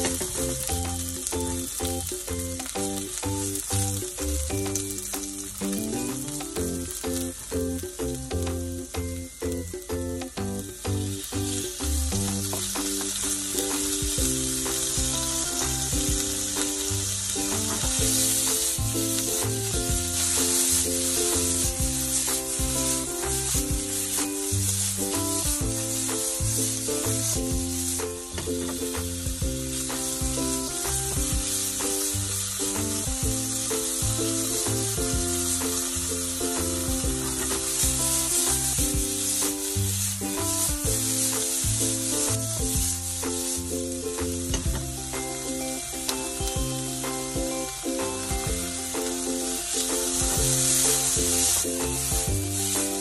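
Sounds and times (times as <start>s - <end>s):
background music: 0.0s - 53.0s
meat sizzling in a frying pan: 0.0s - 53.0s
spatula stirring in pan: 33.5s - 43.7s, 48.5s - 53.0s.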